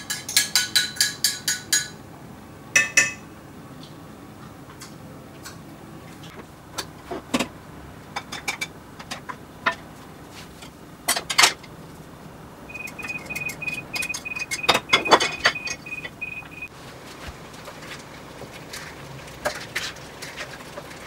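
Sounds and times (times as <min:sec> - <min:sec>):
high electronic beep: 0:12.7 - 0:16.7.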